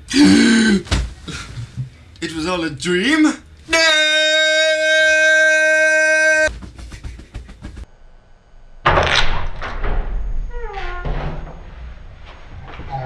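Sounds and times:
man's long yell: 3.7 - 6.5.

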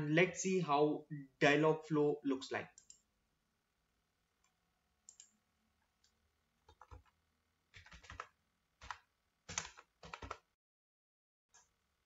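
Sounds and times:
typing on a keyboard: 6.6 - 7.2, 7.8 - 10.5.

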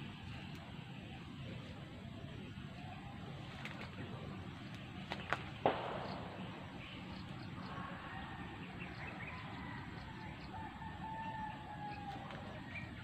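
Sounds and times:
outdoor background noise: 0.0 - 13.0
rooster crowing faintly: 7.6 - 13.0.

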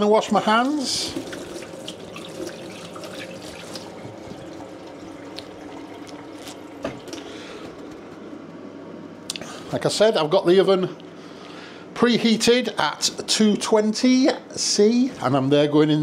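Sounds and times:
tap water running: 0.4 - 7.9.

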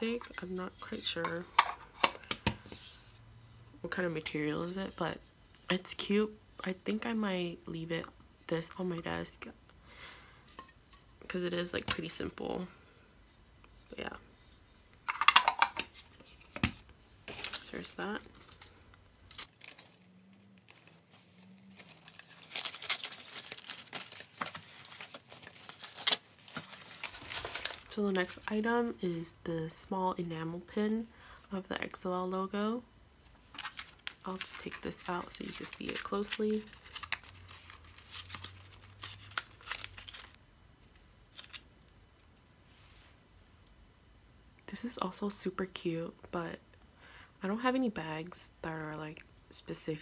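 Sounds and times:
packaging rustling and crinkling: 17.3 - 28.0, 33.5 - 40.4.

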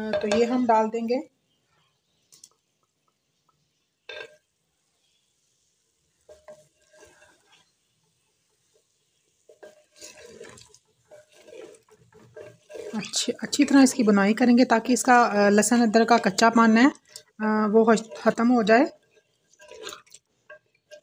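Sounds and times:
wooden spoon scraping clay pot: 6.2 - 21.0.

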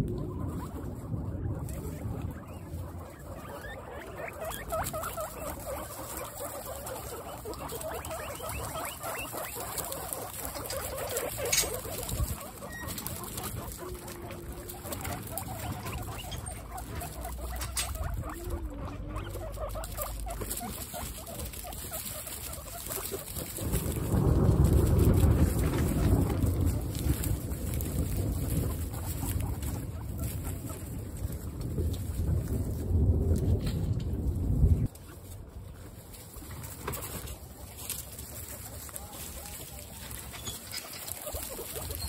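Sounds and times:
guinea pigs calling: 0.0 - 42.0
rustling through straw: 0.0 - 42.0
rain pattering: 18.9 - 30.2, 30.9 - 35.0.

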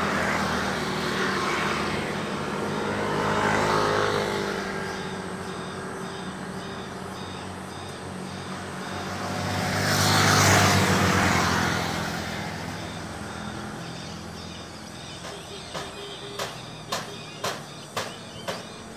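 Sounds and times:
low engine hum: 0.0 - 18.9
vehicle passing by: 0.0 - 18.9
faint high chirp: 11.8 - 18.9.

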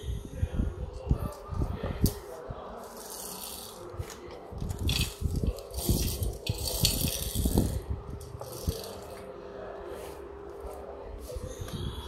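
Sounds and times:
toy car wheels rolling on tiles: 1.1 - 9.3.

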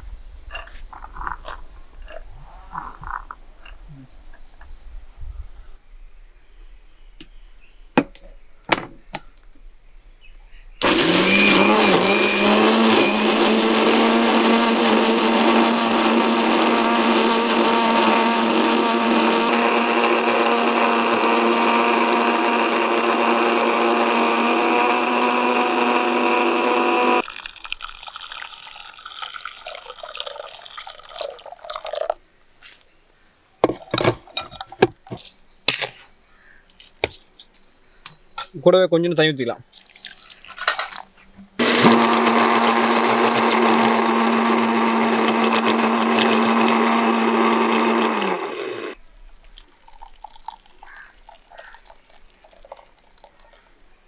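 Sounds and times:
electric blender running: 10.8 - 27.2, 41.6 - 49.0.

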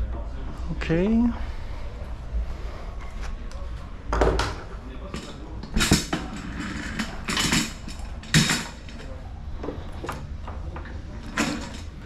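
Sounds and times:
bike parts clattering and scraping: 2.9 - 12.0.

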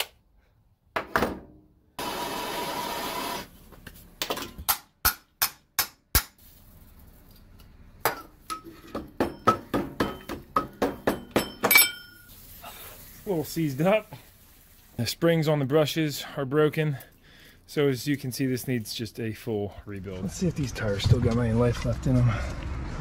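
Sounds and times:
hammer knocking on metal: 9.0 - 11.8
steady hiss: 12.1 - 15.7.

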